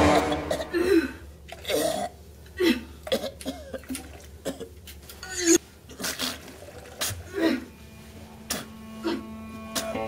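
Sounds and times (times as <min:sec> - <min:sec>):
person coughing and groaning in pain: 0:00.0 - 0:04.7.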